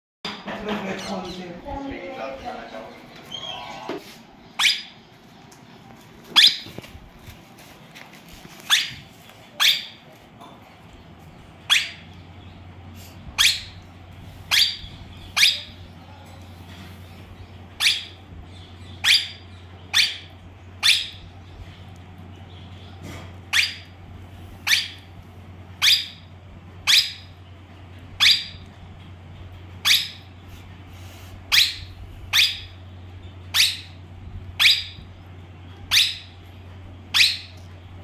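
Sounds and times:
parakeets giving sharp calls: 0:03.2 - 0:05.1, 0:06.3 - 0:06.8, 0:08.6 - 0:10.0, 0:11.6 - 0:12.6, 0:13.2 - 0:16.0, 0:17.4 - 0:21.5, 0:22.4 - 0:24.0, 0:24.6 - 0:25.1, 0:25.8 - 0:27.4, 0:28.2 - 0:28.6, 0:29.8 - 0:30.8, 0:31.5 - 0:35.2, 0:35.8 - 0:37.6.

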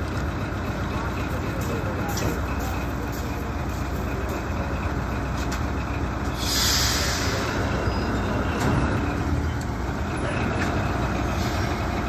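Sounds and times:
diesel locomotive engine rumble: 0:00.0 - 0:12.0
air hiss: 0:06.3 - 0:07.8.

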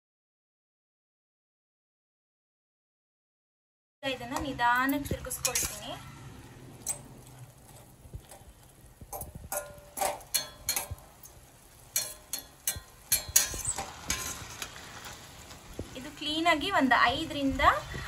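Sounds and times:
faint syrup sizzle: 0:04.0 - 0:18.0
spatula scraping metal pot: 0:05.3 - 0:05.9, 0:11.8 - 0:15.5.

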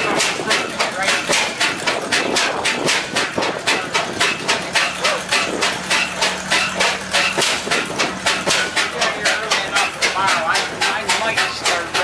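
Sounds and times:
steam engine chuffing: 0:00.0 - 0:12.0.

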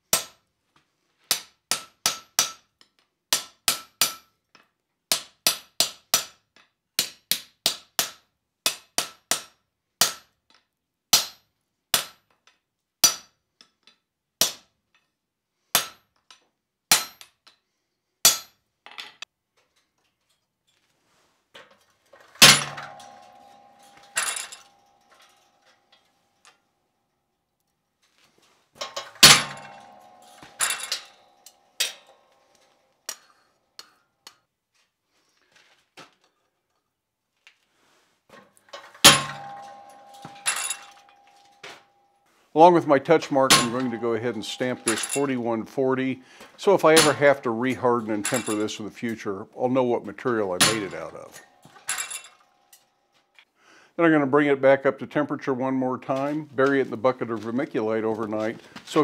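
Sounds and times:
ringing metal clangs: 0:22.2 - 0:26.5, 0:28.8 - 0:33.3, 0:38.7 - 0:48.8, 0:50.2 - 0:53.0.

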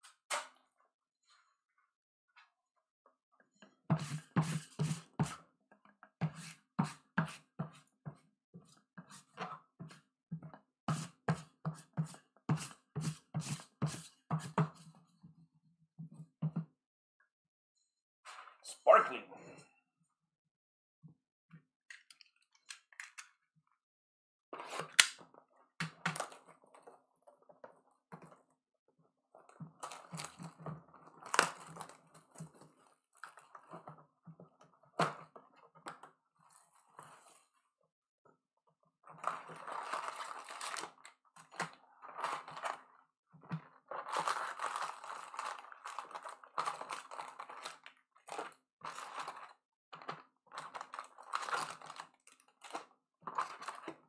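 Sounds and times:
plastic wrap crinkling: 0:29.7 - 0:33.7, 0:39.1 - 0:43.0, 0:43.8 - 0:54.0.

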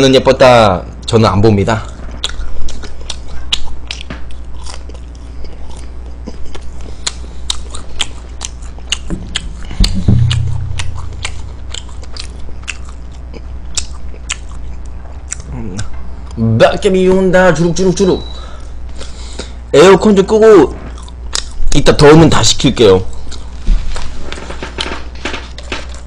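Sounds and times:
steady low hum: 0:00.0 - 0:26.0
crisp chewing and biting: 0:01.8 - 0:16.4, 0:20.9 - 0:21.8, 0:23.0 - 0:24.1
thump with low rumble: 0:09.0 - 0:12.6.

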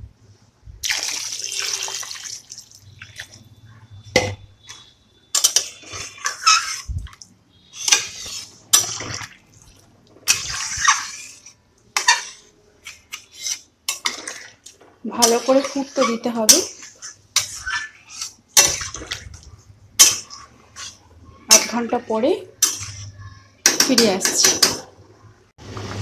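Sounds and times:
water pouring into pot: 0:00.8 - 0:03.4
spatula stirring and knocking pot: 0:04.2 - 0:24.9.

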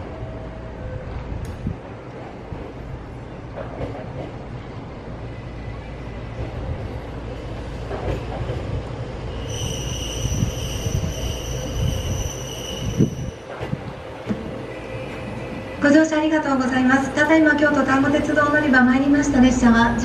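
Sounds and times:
diesel railcar rumble: 0:00.0 - 0:20.0
high-pitched brake squeal: 0:09.4 - 0:13.5.

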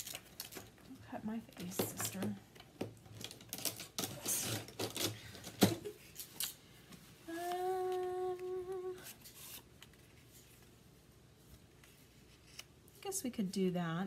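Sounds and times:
woman humming: 0:07.3 - 0:09.1.

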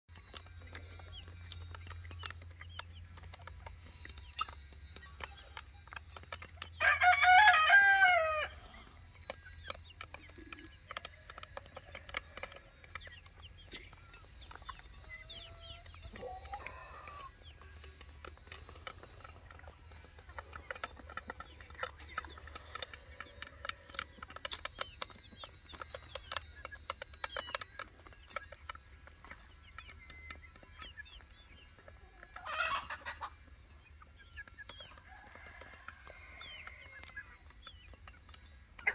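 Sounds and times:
chickens clucking: 0:00.1 - 0:38.9
rooster crow: 0:06.8 - 0:08.7, 0:35.0 - 0:37.1
beaks ticking against dish: 0:08.9 - 0:31.5.

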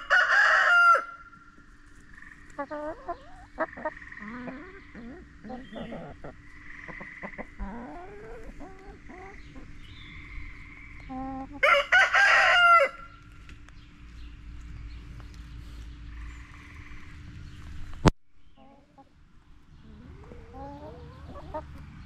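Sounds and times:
loud drawn-out chicken call: 0:00.0 - 0:01.4, 0:11.6 - 0:13.2
hens clucking: 0:00.0 - 0:14.6, 0:18.6 - 0:22.0.

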